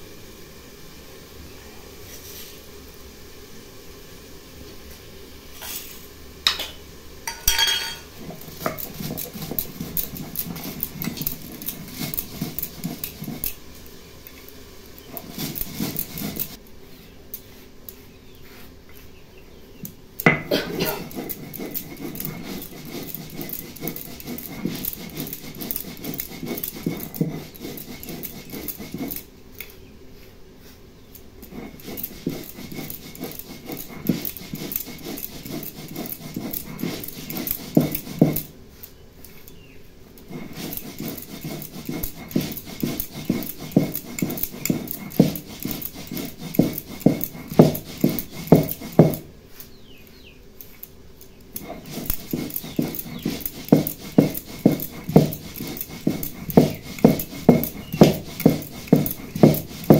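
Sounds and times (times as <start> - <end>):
stone roller grinding on slab: 7.3 - 13.6, 15.0 - 16.6, 20.2 - 29.3, 31.4 - 38.5, 40.2 - 49.3, 51.6 - 59.9.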